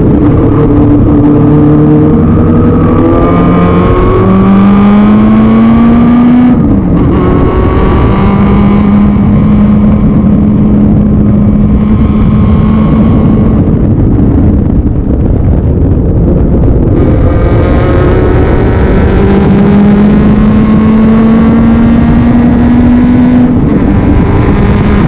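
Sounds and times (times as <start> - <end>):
race car engine accelerating: 0.0 - 14.4, 16.8 - 25.0
wind rush: 0.0 - 25.0.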